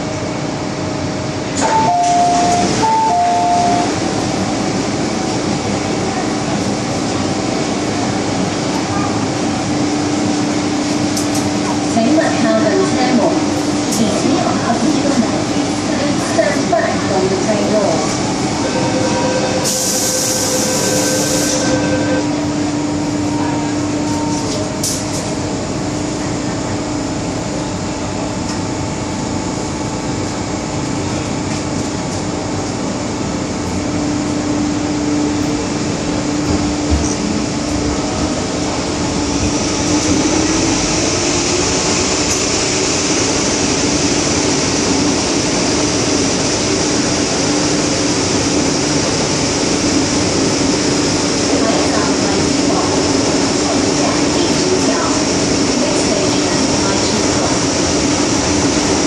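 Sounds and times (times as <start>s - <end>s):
rail noise: 0.0s - 59.0s
subway train motor hum: 0.0s - 59.0s
electronic door-closing tones: 1.6s - 3.9s.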